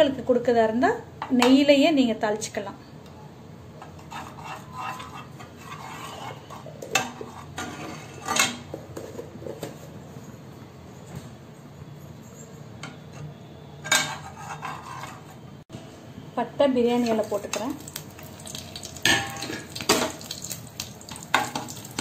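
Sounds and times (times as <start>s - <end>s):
spoon scraping a frying pan: 3.8s - 9.8s, 12.6s - 15.6s, 21.1s - 22.0s.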